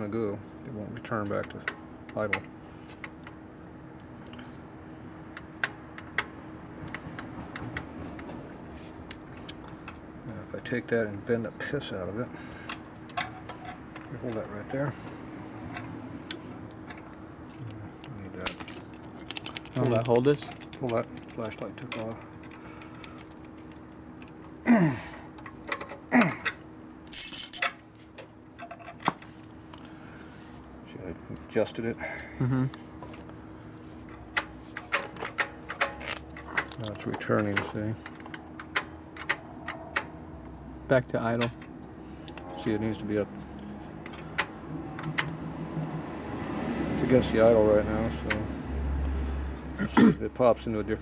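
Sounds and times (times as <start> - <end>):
faint steady hum: 0.0 - 51.0.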